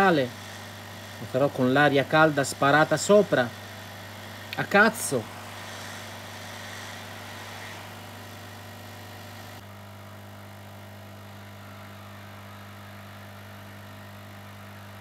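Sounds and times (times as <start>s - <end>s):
hot air station hissing: 0.0s - 9.6s.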